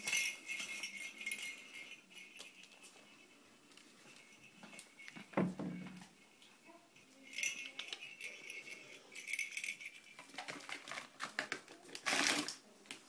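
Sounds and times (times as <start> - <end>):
rattling jangling bursts: 0.0 - 3.3, 7.0 - 11.0.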